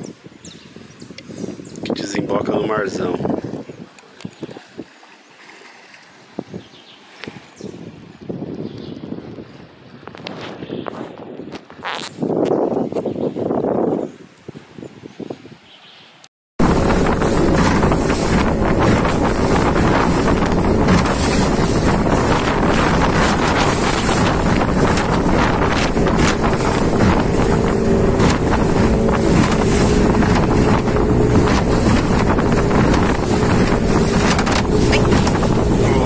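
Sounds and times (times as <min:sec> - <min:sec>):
wind noise on microphone: 0:00.0 - 0:05.0, 0:06.3 - 0:15.7, 0:16.6 - 0:36.0
water rushing off hull: 0:02.0 - 0:07.6, 0:16.6 - 0:36.0
motorboat engine drone: 0:16.6 - 0:36.0.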